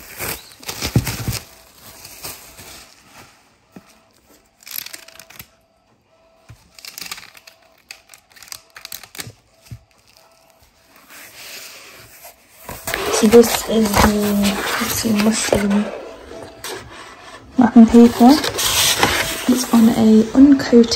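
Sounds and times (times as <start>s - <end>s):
plastic packaging crinkling: 0.0s - 5.6s, 6.6s - 20.9s
paper rustling: 6.5s - 20.9s.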